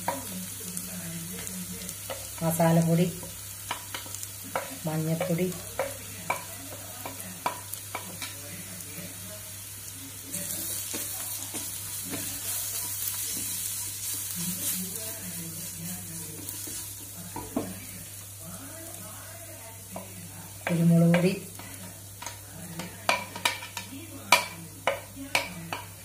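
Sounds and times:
mushrooms sizzling in a wok: 0.0s - 26.0s
wooden spatula stirring: 10.3s - 17.9s
metal spoon clicking on pan: 23.1s - 25.9s.

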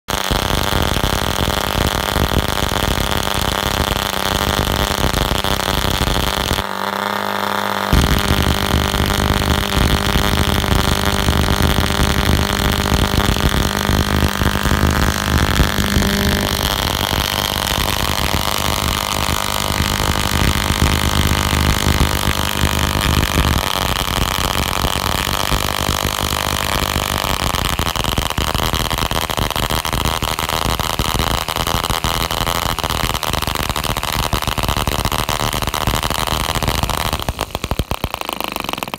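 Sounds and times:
model diesel engine running: 6.3s - 26.7s.

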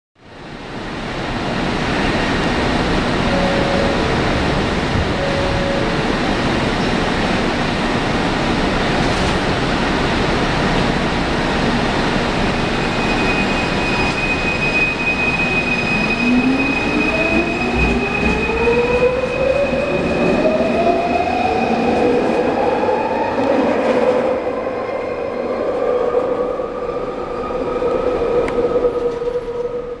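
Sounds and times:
steady high tone: 3.2s - 6.6s, 12.6s - 30.0s.

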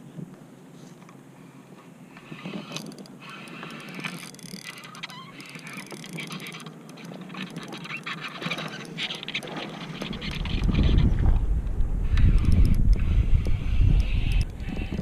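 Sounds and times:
fishing tackle clicking and rattling: 2.4s - 10.7s.

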